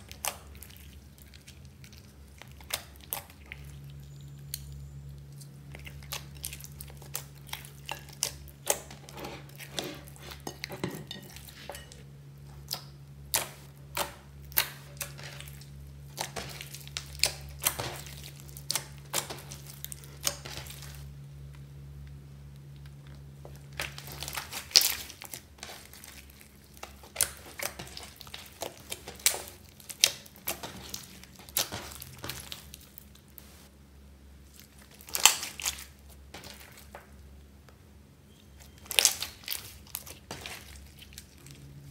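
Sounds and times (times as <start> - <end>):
slime popping and crackling: 12.5 - 21.0, 23.5 - 33.6, 34.5 - 37.1, 38.7 - 41.6.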